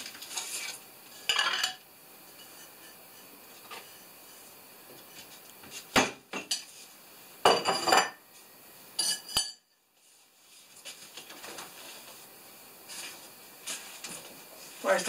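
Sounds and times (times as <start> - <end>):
dishes and cookware clattering: 1.2 - 3.0, 5.9 - 6.7, 7.4 - 8.2, 9.0 - 9.7.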